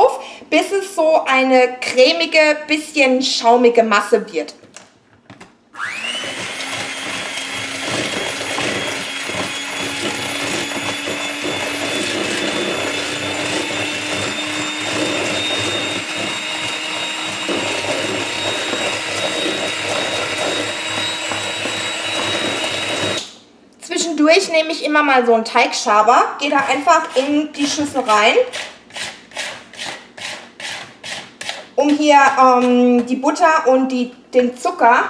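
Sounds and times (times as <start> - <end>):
electric hand mixer whining: 5.8 - 23.4, 26.4 - 32.8.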